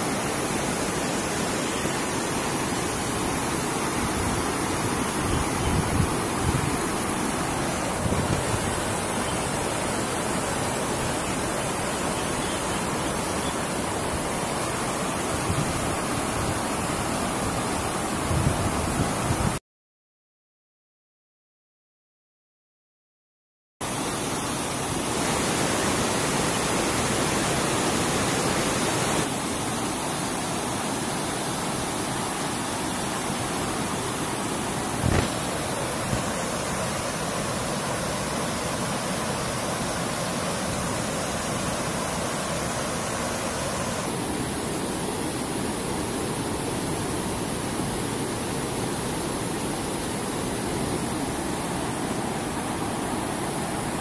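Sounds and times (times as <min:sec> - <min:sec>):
river rushing over rocks: 0:00.0 - 0:19.5, 0:23.8 - 0:54.0.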